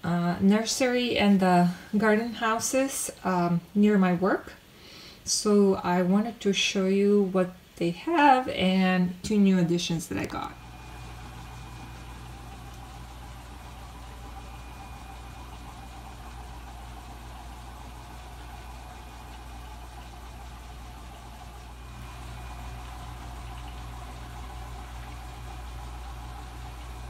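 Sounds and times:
low machine hum: 0:08.3 - 0:27.0.

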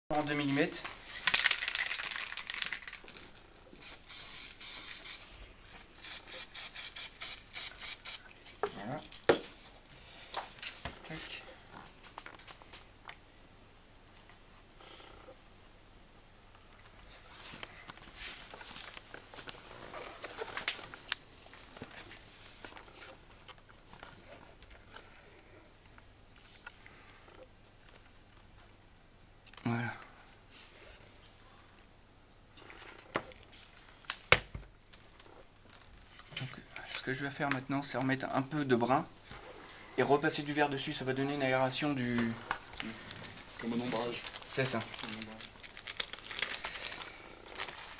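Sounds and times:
aerosol spray can spraying: 0:03.8 - 0:05.3, 0:06.0 - 0:08.3.

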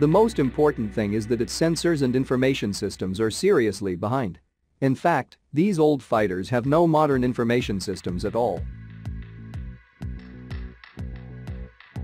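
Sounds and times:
background music with steady beat: 0:00.0 - 0:03.4, 0:06.4 - 0:12.0.

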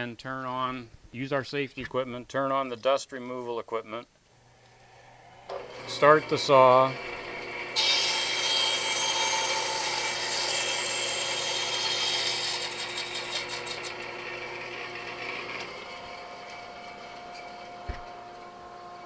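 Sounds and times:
dust collection vacuum: 0:05.0 - 0:10.2
bandsaw motor running: 0:05.3 - 0:19.0.

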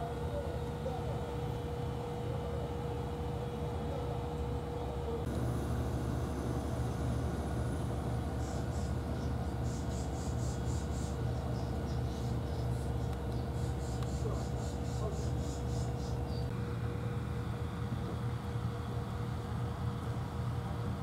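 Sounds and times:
low outdoor hum: 0:00.0 - 0:21.0
faint steady tone: 0:05.3 - 0:12.5.

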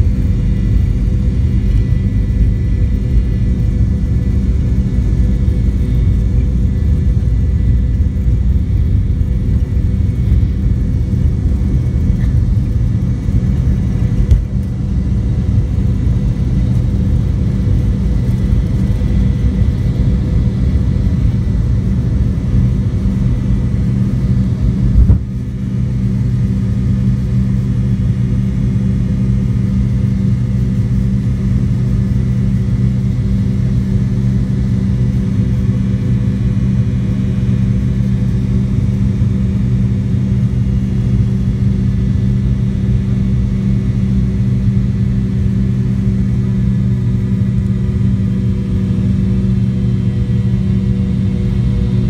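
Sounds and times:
jet engines rumbling in cabin: 0:00.0 - 0:52.0
short thumps: 0:25.0 - 0:25.4.

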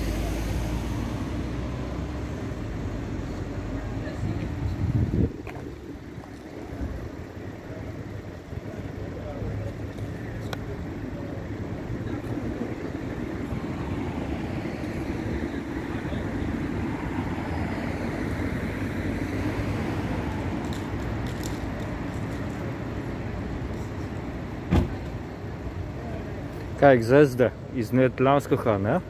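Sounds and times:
vehicle engines running: 0:00.0 - 0:29.0.

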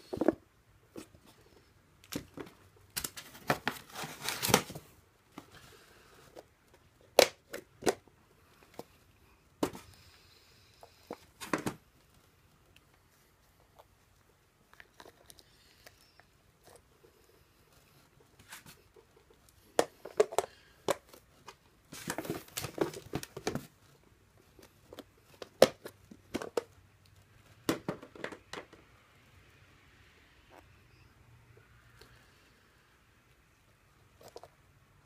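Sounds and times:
crinkling and rustling: 0:00.0 - 0:10.0, 0:10.8 - 0:28.8.

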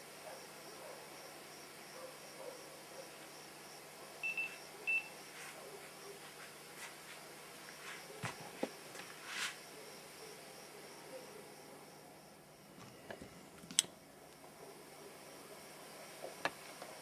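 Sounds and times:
short electronic beeps: 0:04.2 - 0:05.2.

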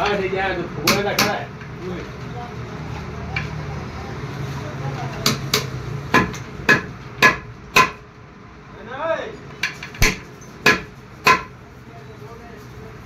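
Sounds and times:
hammer striking metal: 0:05.2 - 0:08.0, 0:09.6 - 0:11.5.

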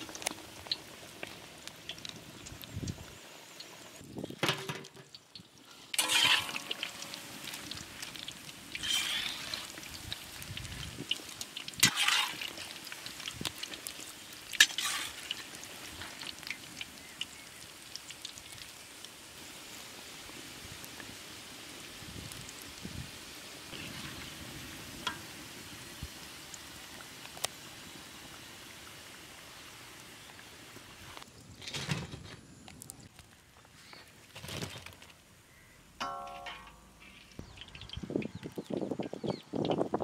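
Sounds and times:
oil sizzling and bubbling: 0:00.0 - 0:31.3, 0:35.3 - 0:40.0
oil splashing: 0:05.9 - 0:10.2, 0:11.4 - 0:13.7
oil dripping: 0:36.0 - 0:38.8.

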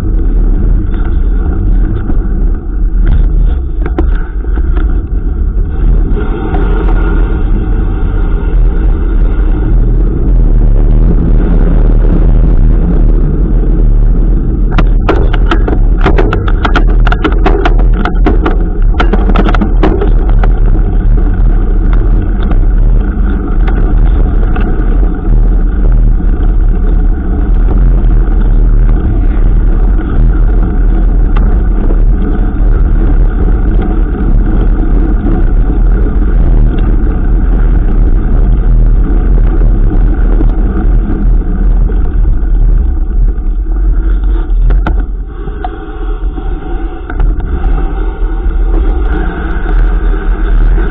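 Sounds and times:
bike clicks and rattles: 0:00.0 - 0:07.2, 0:14.7 - 0:45.8
loud wind rumble on microphone: 0:00.0 - 0:50.9.

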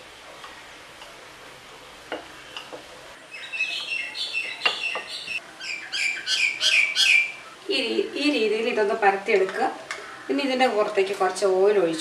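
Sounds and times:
bird chirping and whistling: 0:03.3 - 0:07.4.

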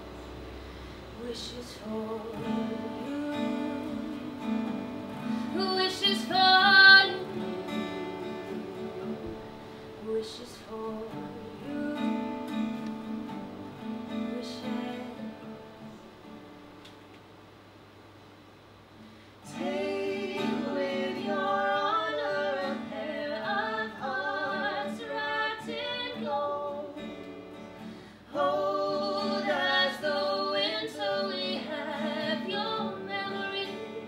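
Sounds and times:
person singing a slow melody: 0:00.0 - 0:15.9, 0:19.4 - 0:34.0
acoustic guitar: 0:00.0 - 0:18.0, 0:18.8 - 0:34.0.

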